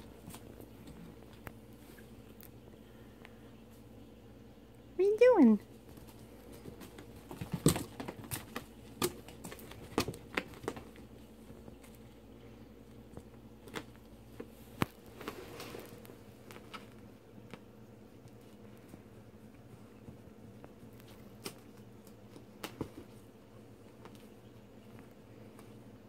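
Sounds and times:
streamers rustling on carpet: 5.8s - 26.0s.

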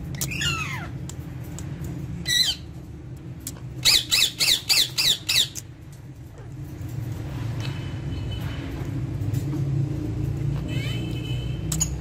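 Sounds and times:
parakeet squawking: 0.2s - 1.0s, 2.2s - 2.8s, 3.8s - 5.7s, 10.6s - 11.2s.

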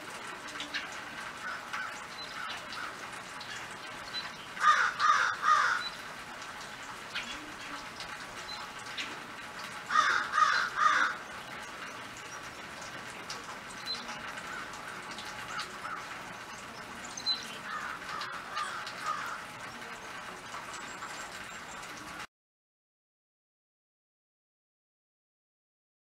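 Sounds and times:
steady background noise: 0.0s - 22.3s
crow cawing: 1.4s - 3.6s, 4.6s - 6.0s, 9.9s - 11.3s, 14.5s - 16.2s, 17.6s - 19.5s.

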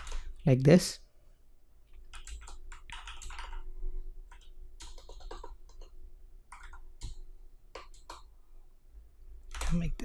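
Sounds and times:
computer keyboard typing: 0.0s - 0.3s, 1.9s - 8.3s, 9.4s - 10.0s.

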